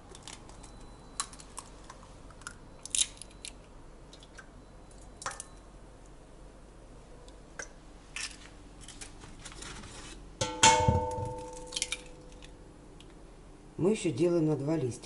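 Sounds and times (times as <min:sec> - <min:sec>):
eggshells cracking and clicking: 0:00.1 - 0:03.6.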